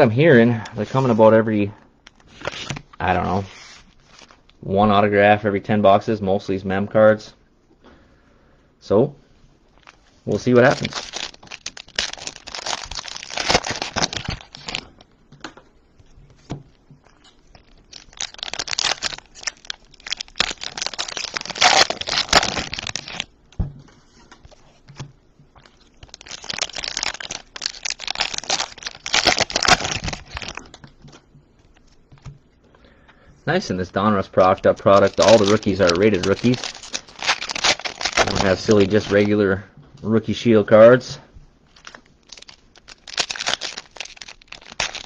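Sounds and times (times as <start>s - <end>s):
plastic wrappers crinkling: 2.0s - 4.6s, 9.7s - 15.1s, 16.0s - 23.3s, 23.9s - 32.3s, 33.7s - 39.5s, 41.7s - 45.0s.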